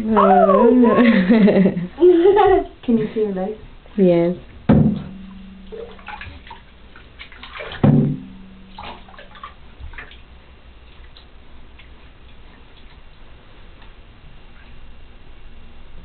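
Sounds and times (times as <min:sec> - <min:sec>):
bath water splashing: 0:04.6 - 0:13.7
loud knock: 0:04.7 - 0:05.3, 0:07.8 - 0:08.4.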